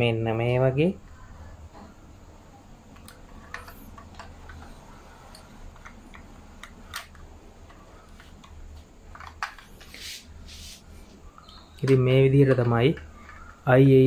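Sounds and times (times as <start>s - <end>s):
low steady hum: 0.0s - 14.0s
model car parts clicking: 2.9s - 9.8s, 11.4s - 14.0s.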